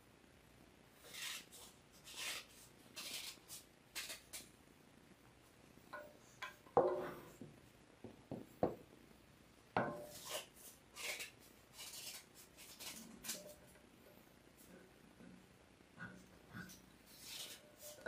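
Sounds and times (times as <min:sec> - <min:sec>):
rubbing and scraping: 0:01.0 - 0:04.5, 0:16.0 - 0:18.0.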